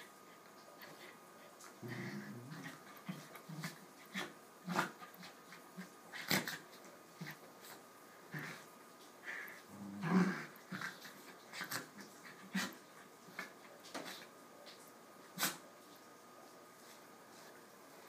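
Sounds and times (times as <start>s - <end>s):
dog growling: 1.8s - 6.6s, 8.3s - 8.7s, 9.7s - 12.8s.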